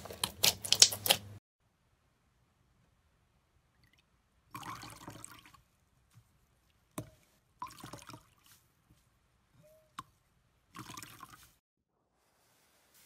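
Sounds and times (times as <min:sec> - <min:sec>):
sponge squelching in liquid: 0:03.8 - 0:09.2, 0:10.0 - 0:11.6.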